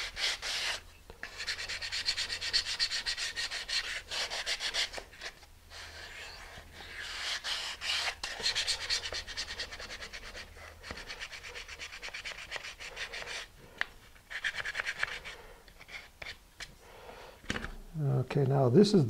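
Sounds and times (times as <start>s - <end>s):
sandpaper rubbing on wood: 0.0s - 13.5s.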